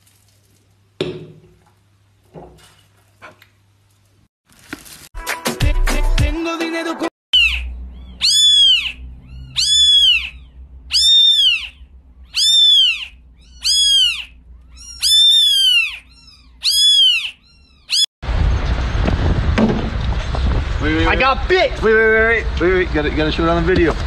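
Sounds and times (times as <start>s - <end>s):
cat meowing: 8.0s - 18.1s.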